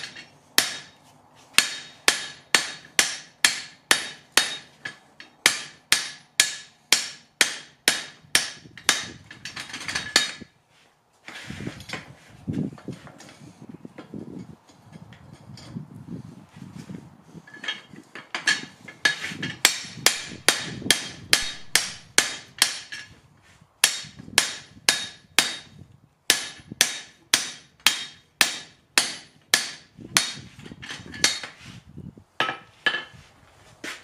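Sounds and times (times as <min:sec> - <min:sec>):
hammer ringing on metal: 0:00.6 - 0:01.0, 0:19.7 - 0:22.9.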